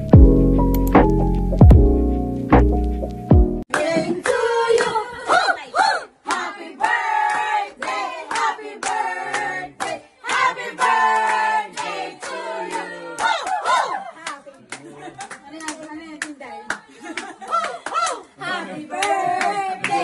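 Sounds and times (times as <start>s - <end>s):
people clapping in time: 3.7s - 5.0s, 6.3s - 18.2s, 19.0s - 20.0s
group of people singing: 3.7s - 14.0s, 18.3s - 20.0s.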